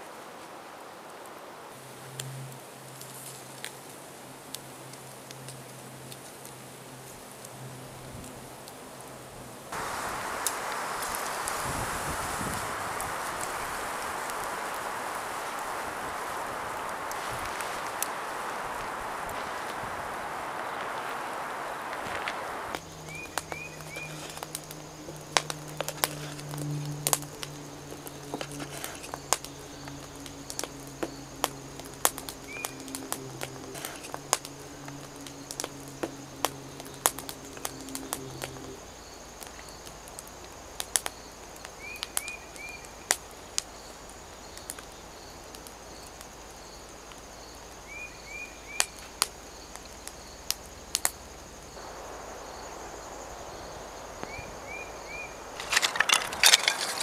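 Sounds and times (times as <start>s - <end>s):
high insect buzz: 9.7s - 41.9s, 44.9s - 57.0s.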